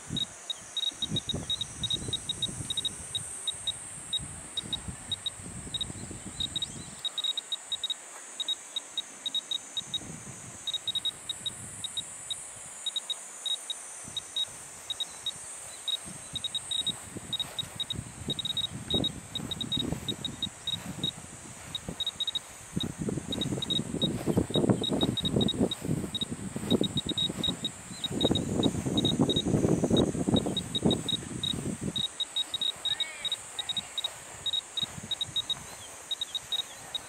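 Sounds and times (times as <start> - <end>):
wind rumble on microphone: 0.0 - 7.1, 9.8 - 12.8, 14.0 - 37.0
steady high hiss: 0.0 - 37.0
short high beeps: 0.2 - 10.0, 10.7 - 37.0.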